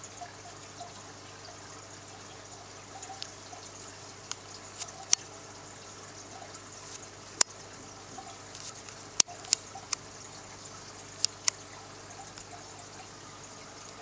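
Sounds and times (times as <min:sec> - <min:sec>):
aquarium water trickling: 0:00.0 - 0:14.0
sharp clicks: 0:08.6 - 0:10.1, 0:11.2 - 0:11.7.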